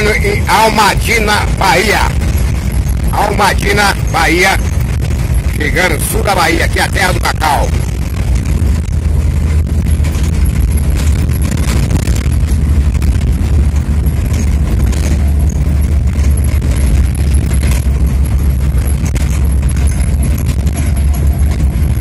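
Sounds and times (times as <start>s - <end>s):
engine and tyres rumbling: 0.0s - 22.0s
knocks and rattles: 0.0s - 22.0s.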